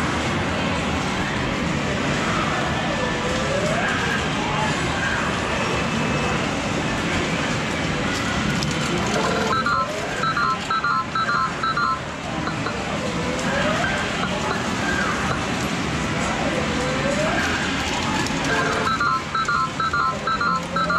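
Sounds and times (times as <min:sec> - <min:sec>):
short electronic beeps: 0:09.2 - 0:12.9, 0:18.6 - 0:20.9
arcade din: 0:09.2 - 0:13.0, 0:18.4 - 0:20.9.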